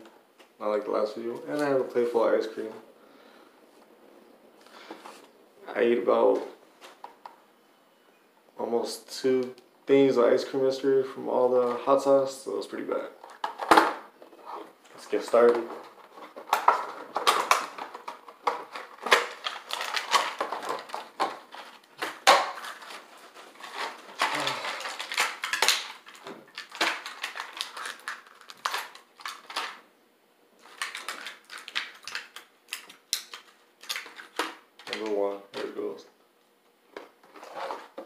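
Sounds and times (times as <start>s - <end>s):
plastic tray crinkling: 14.6s - 29.8s, 30.6s - 35.2s.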